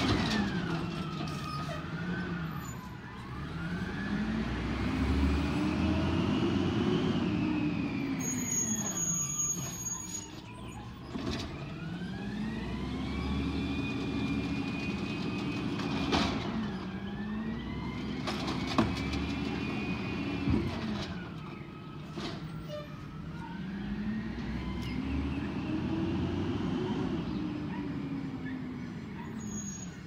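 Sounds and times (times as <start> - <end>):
garbage truck diesel engine revving: 3.3 - 8.0, 11.8 - 20.8, 23.5 - 27.7.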